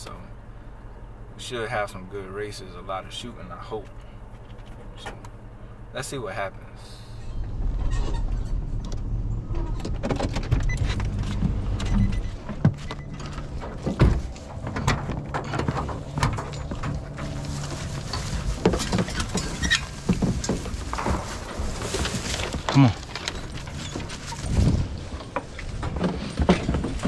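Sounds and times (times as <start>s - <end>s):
truck engine humming: 0.0s - 27.0s
footsteps crunching through dry leaves: 16.6s - 25.1s.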